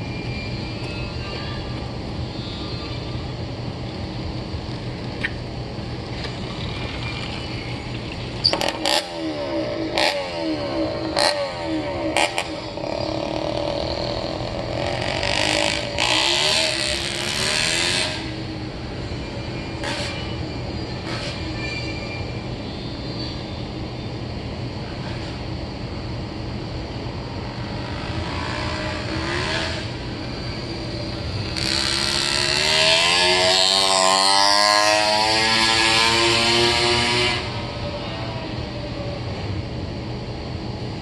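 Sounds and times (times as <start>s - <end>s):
two-stroke engine revving: 8.4s - 18.4s, 27.8s - 30.0s, 31.4s - 37.6s.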